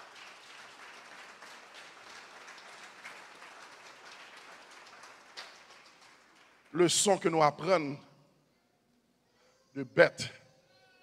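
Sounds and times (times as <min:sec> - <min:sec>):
faint applause: 0:00.0 - 0:07.1.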